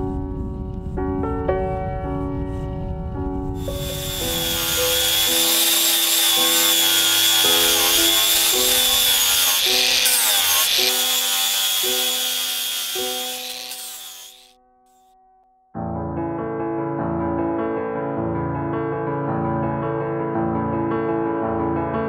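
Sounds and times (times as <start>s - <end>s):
piano music: 0.0s - 10.2s
angle grinder sanding wood: 3.6s - 14.5s.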